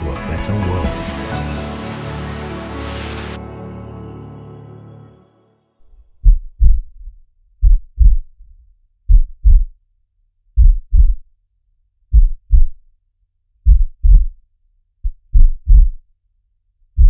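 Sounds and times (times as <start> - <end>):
heartbeat thuds: 6.1 - 8.4, 9.1 - 9.8, 10.6 - 11.2, 12.1 - 12.8, 13.6 - 14.4, 15.0 - 16.0.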